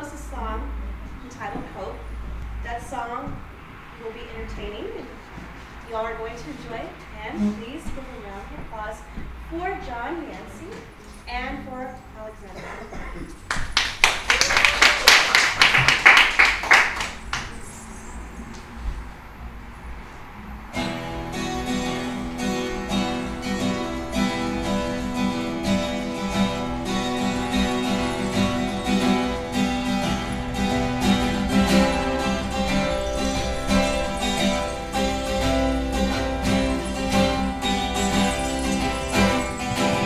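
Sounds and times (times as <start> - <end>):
acoustic guitar plucked: 6.1 - 8.8, 20.8 - 40.0
audience applause: 13.5 - 17.6.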